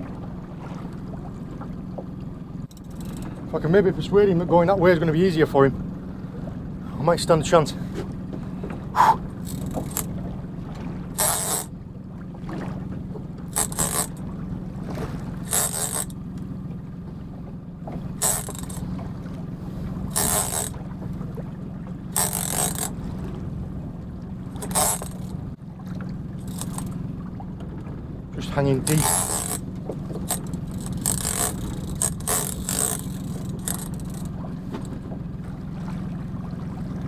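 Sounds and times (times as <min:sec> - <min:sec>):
rasping splashing bursts: 0:00.0 - 0:25.6, 0:26.2 - 0:27.3, 0:28.4 - 0:37.0
steady low hum: 0:00.0 - 0:37.0.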